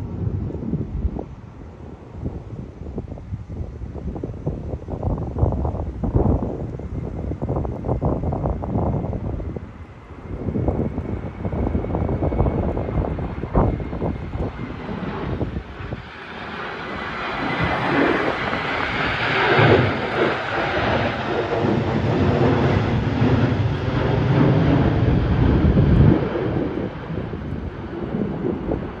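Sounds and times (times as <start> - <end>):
wind buffeting microphone: 0.0 - 29.0
jet engines roaring: 3.6 - 29.0.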